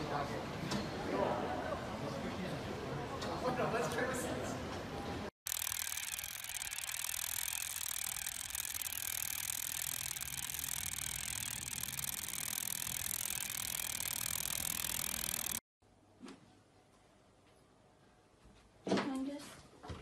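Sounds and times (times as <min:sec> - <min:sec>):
high-pitched rattling buzz: 0:05.5 - 0:15.7.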